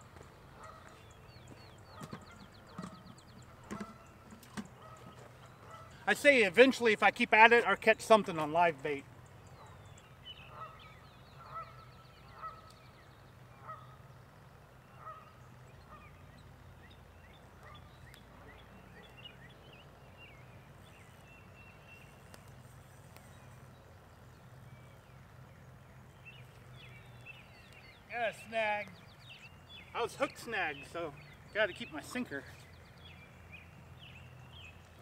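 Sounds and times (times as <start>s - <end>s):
small birds chirping: 0.0s - 35.0s
faint goose honking: 4.8s - 6.2s, 10.4s - 12.8s, 13.5s - 14.0s, 14.9s - 16.2s.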